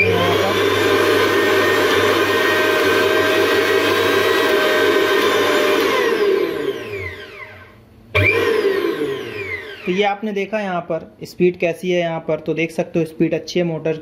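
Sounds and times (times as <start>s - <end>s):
mixer grinder motor whine: 0.0s - 10.3s.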